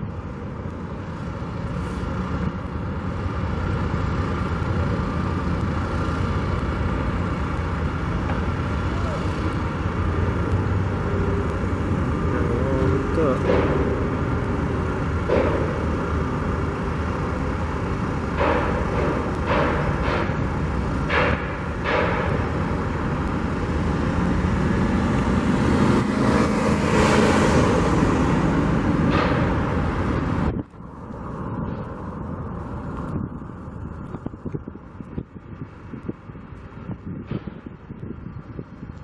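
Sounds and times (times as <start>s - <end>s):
traffic and machinery din: 0.0s - 39.0s
sharp knocks: 13.3s - 14.3s, 15.2s - 16.1s, 18.3s - 22.8s, 29.0s - 29.9s.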